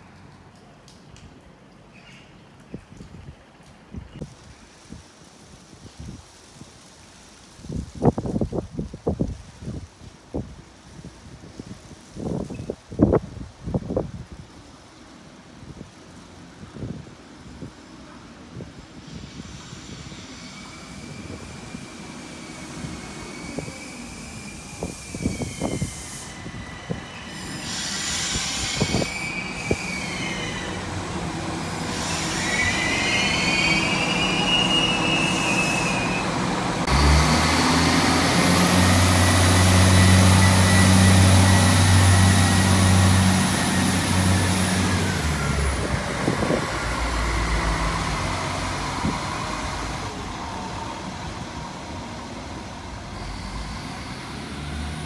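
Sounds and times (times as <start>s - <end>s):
train wheels squealing: 19.0s - 31.1s, 31.8s - 36.4s, 39.0s - 45.8s, 47.2s - 54.9s
diesel engine low drone: 36.0s - 55.0s.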